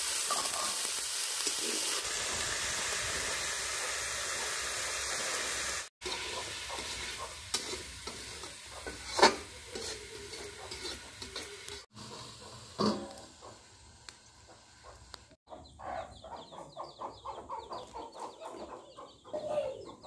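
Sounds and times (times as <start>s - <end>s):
chicken sizzling in a pan: 0.0s - 15.4s
steel plate clattering onto pan: 6.0s - 11.9s, 12.8s - 13.3s
spatula scraping a pan: 6.0s - 13.6s.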